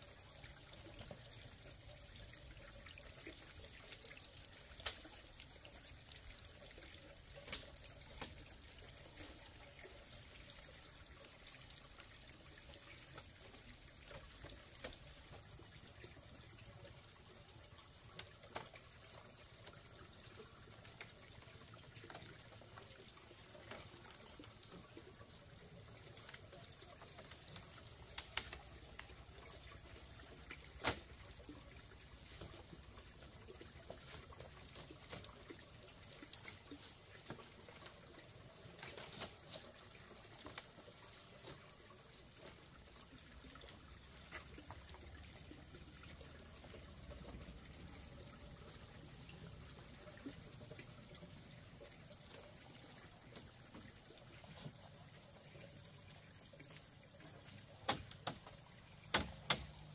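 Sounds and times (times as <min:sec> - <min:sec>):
faint trickling water: 0:00.0 - 0:59.9
sharp clicks and knocks: 0:57.9 - 0:59.8.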